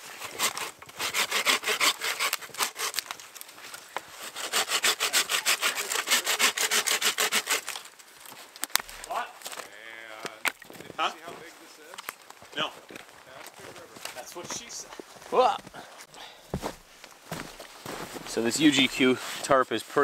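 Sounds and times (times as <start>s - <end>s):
bow saw cutting branch: 0.0s - 3.4s, 4.2s - 7.9s.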